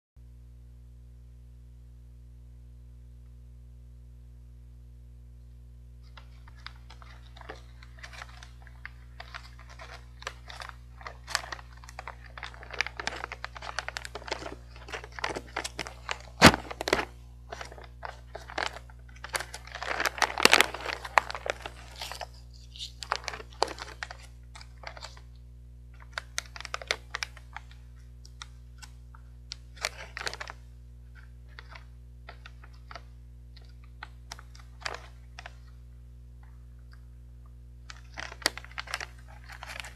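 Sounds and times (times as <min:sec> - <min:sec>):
plastic bag crinkling and tearing: 0:06.0 - 0:25.3, 0:25.9 - 0:30.6, 0:31.2 - 0:35.7, 0:37.8 - 0:39.9
sharp crack: 0:16.4 - 0:17.1.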